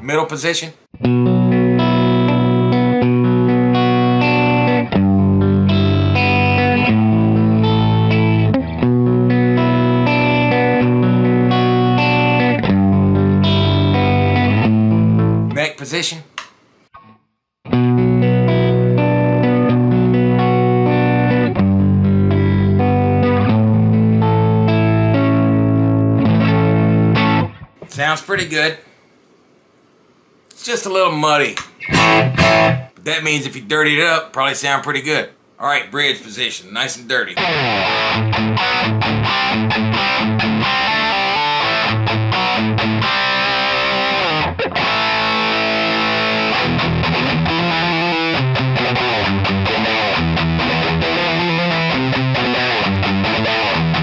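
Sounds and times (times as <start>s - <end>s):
electric guitar chords: 1.0s - 15.6s, 17.7s - 27.9s, 31.7s - 33.0s, 37.4s - 54.0s.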